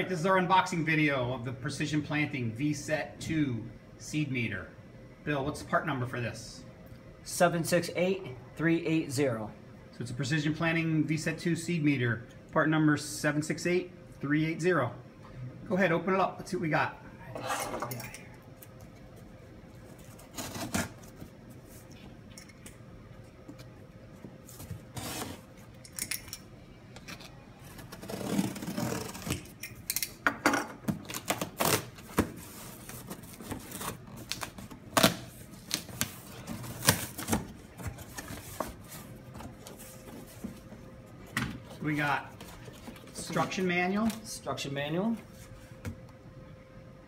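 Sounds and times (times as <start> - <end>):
packing tape being cut: 20.1 - 21.2, 27.7 - 29.5, 31.0 - 37.4.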